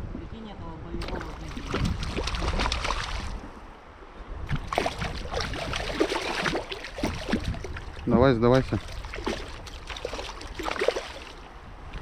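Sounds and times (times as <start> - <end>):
fish splashing at water surface: 1.0 - 3.5, 4.5 - 8.0, 8.7 - 11.4
river rushing: 4.7 - 8.1.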